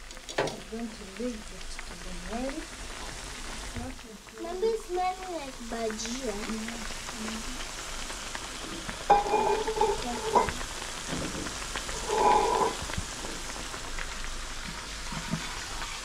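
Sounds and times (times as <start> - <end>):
potatoes sizzling in hot oil: 0.0 - 16.0.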